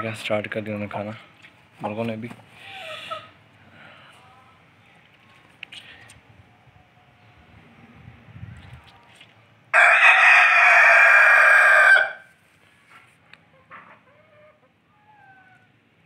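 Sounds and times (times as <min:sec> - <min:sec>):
rooster crowing: 0:09.7 - 0:12.3
soft chicken calls: 0:13.4 - 0:15.8.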